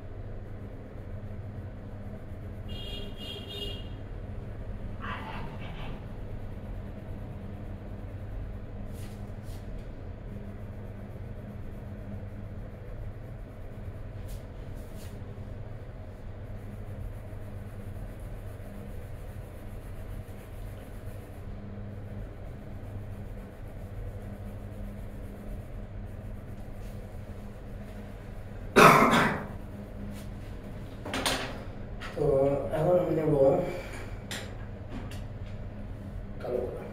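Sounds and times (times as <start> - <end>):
low room hum: 0.0 - 36.9
pencil scratching on paper: 16.4 - 28.6.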